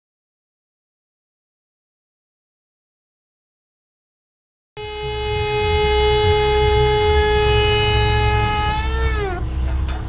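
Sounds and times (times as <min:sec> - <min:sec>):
router spindle whining: 0:04.8 - 0:09.9.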